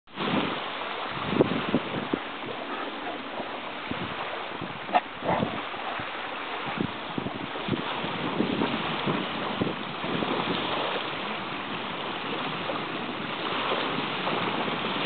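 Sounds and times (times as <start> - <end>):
surf: 0.1 - 15.0
wind: 0.1 - 15.0
dog bark: 4.9 - 5.6.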